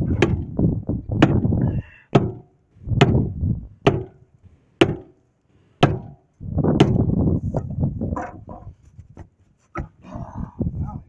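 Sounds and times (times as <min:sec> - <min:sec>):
hammer striking tire rim: 0:03.9 - 0:04.2, 0:04.8 - 0:05.1, 0:05.8 - 0:06.2.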